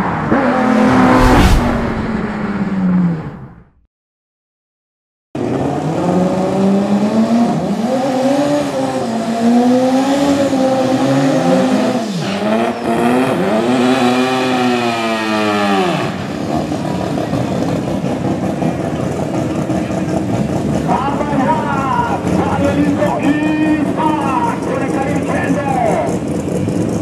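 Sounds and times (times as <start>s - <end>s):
car engine revving: 0.0s - 3.8s.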